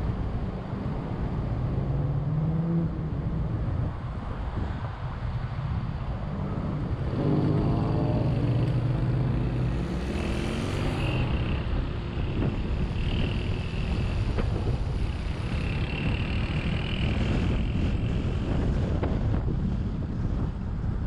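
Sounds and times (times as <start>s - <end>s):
car engine: 0.0s - 18.4s
tyre and road rumble: 0.0s - 21.0s
wind noise: 0.0s - 21.0s.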